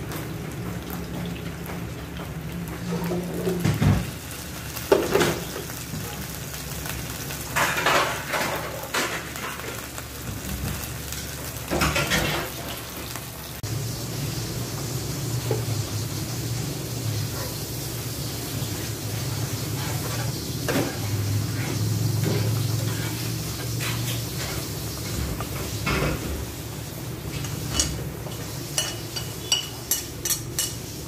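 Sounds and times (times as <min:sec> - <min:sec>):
butter sizzling in a pan: 0:00.0 - 0:31.0
chicken frying in oil: 0:00.0 - 0:31.0
pieces clattering in a pan: 0:04.8 - 0:06.4, 0:07.3 - 0:13.2, 0:19.6 - 0:26.5, 0:27.3 - 0:30.8.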